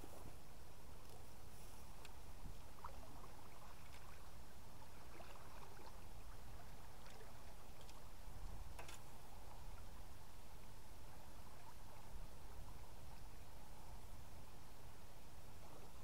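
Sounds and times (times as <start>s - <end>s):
faint click: 2.0s - 2.2s.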